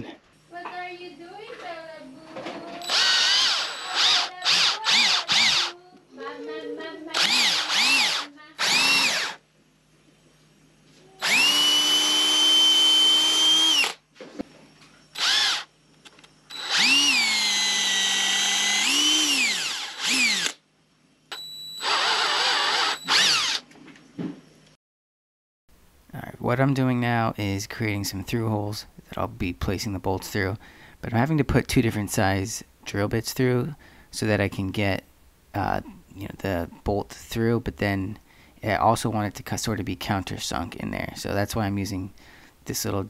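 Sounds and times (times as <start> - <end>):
power drill whining: 2.8 - 5.7, 7.1 - 9.4, 11.2 - 14.0, 15.2 - 15.7, 16.5 - 20.6, 21.3 - 23.6.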